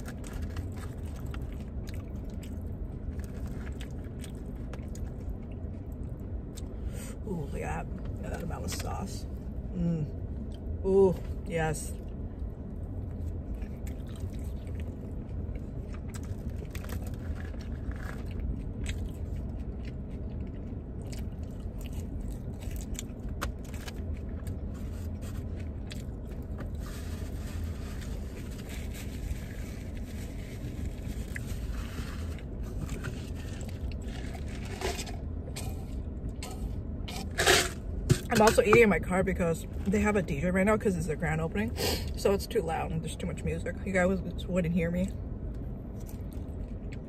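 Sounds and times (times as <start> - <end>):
chewing crispy fries: 0.0 - 6.8, 12.0 - 37.3, 45.8 - 47.0
low rumble: 0.0 - 47.0.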